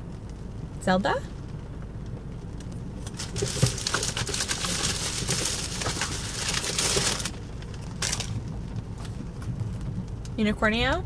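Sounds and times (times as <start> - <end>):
shopping bag rustling: 3.1 - 8.4.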